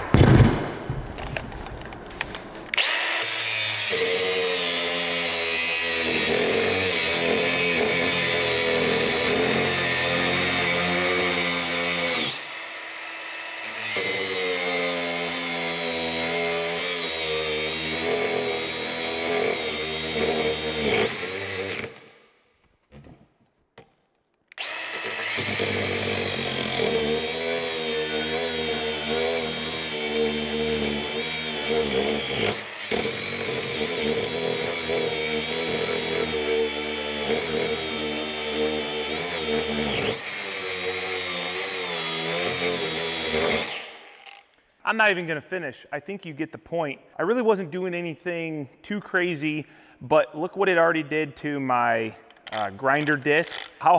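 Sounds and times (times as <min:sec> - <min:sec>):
angle grinder cutting steel: 0:02.7 - 0:22.0, 0:24.5 - 0:44.5.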